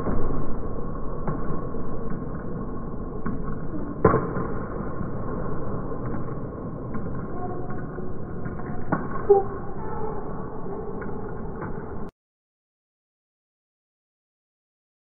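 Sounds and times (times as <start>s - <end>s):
sports hall background noise: 0.0s - 12.1s.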